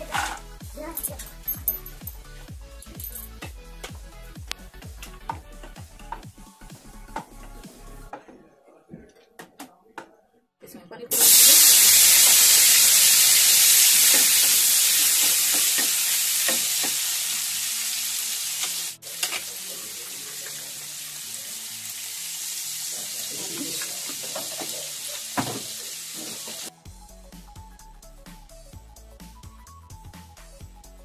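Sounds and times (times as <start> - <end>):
paneer sizzling in a pan: 11.1 - 26.7.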